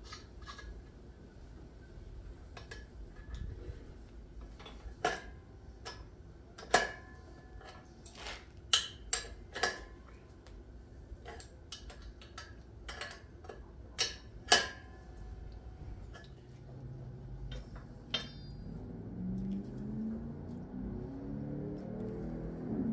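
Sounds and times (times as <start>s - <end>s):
wrench clinking on metal: 8.7s - 9.9s, 11.3s - 15.2s, 17.5s - 18.9s.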